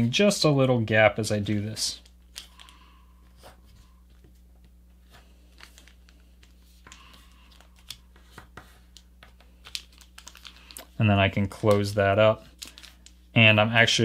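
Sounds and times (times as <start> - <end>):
paper being folded and creased: 5.5 - 11.0.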